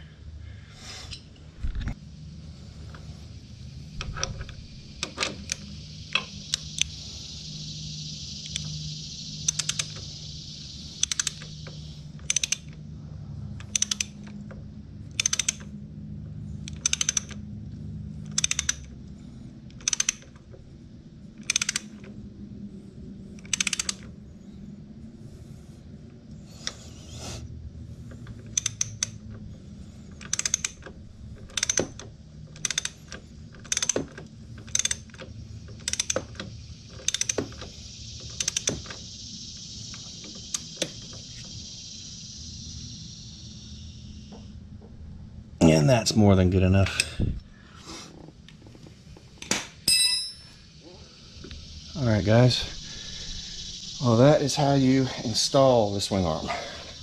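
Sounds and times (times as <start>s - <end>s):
steady hiss: 0.0s - 15.8s, 17.8s - 57.0s
ratchet wrench clicking: 3.9s - 12.8s, 13.6s - 15.8s, 16.6s - 17.5s, 18.2s - 19.0s, 19.7s - 20.6s, 21.3s - 22.2s, 23.3s - 24.1s, 28.1s - 29.5s, 30.1s - 43.3s.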